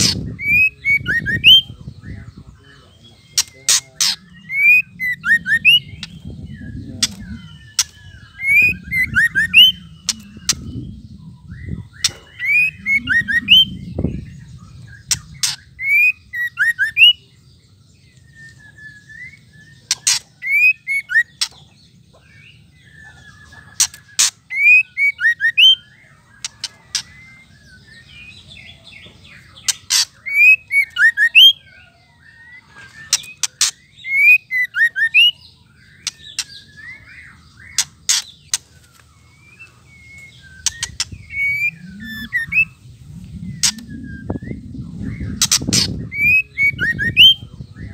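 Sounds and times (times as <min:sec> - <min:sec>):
bird rattling calls: 0:19.9 - 0:20.6, 0:29.7 - 0:30.3, 0:45.3 - 0:46.1.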